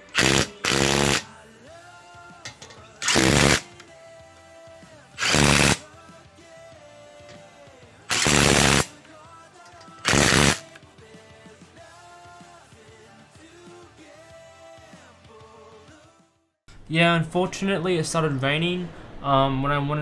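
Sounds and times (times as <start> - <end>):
impact wrench bursts: 0.0 - 1.3, 2.6 - 3.7, 5.2 - 5.8, 8.1 - 8.9, 9.8 - 10.8
background music: 0.0 - 20.0.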